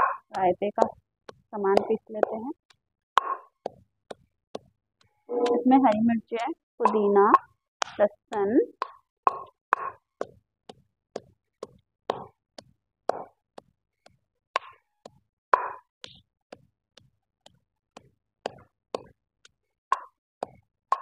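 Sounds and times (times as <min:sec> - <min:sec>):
pestle pounding in stone mortar: 0:00.0 - 0:02.6, 0:03.2 - 0:04.7, 0:05.4 - 0:12.4, 0:13.1 - 0:13.7, 0:17.5 - 0:19.2.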